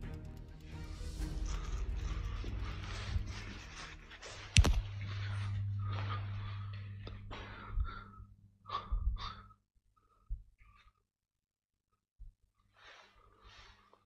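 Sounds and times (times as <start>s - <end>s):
low steady hum: 0.0s - 10.5s
person breathing hard: 0.7s - 11.0s.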